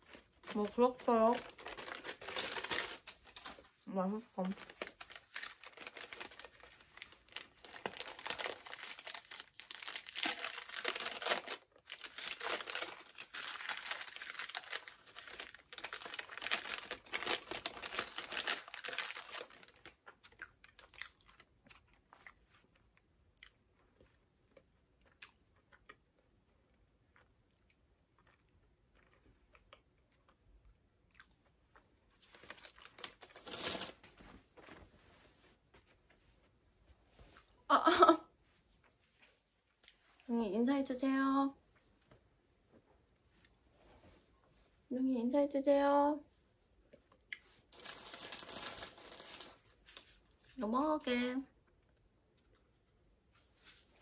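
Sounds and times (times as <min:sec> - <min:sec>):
paper wrapper crinkling: 0:00.0 - 0:03.8, 0:04.4 - 0:21.9, 0:32.2 - 0:34.8, 0:47.5 - 0:50.6
chewing and crunching: 0:18.5 - 0:30.4.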